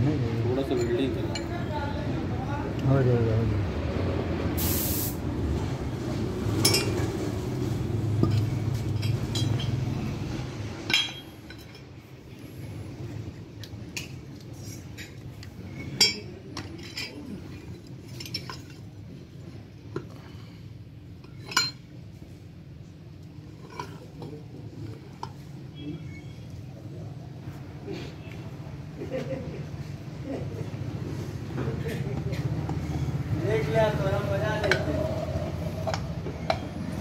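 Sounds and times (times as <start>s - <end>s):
steel parts clinking: 6.6s - 7.1s, 8.2s - 9.9s, 10.8s - 12.0s, 14.0s - 18.9s, 21.2s - 22.0s.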